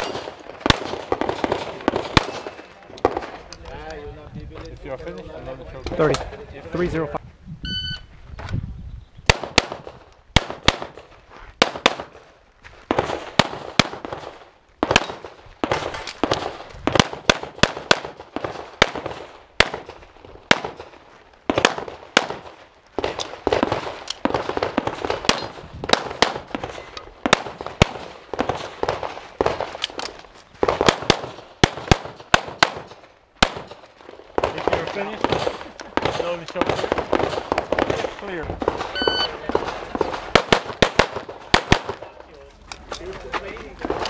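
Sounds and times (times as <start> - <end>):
pistol shots with echo: 0.0 - 3.4, 9.3 - 12.2, 12.9 - 30.0, 30.6 - 42.1.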